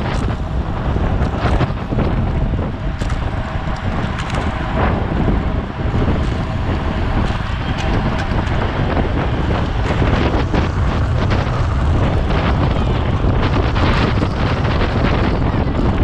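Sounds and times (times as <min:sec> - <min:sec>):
bicycle clicks and ticks: 0:00.0 - 0:16.0
wind buffeting microphone: 0:00.0 - 0:16.0.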